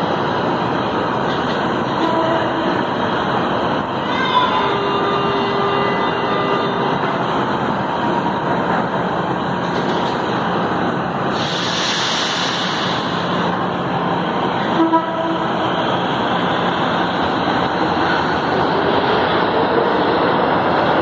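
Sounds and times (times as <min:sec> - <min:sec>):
train pulling away: 0:00.0 - 0:21.0
train rumble: 0:00.0 - 0:21.0
air hiss: 0:11.2 - 0:13.4.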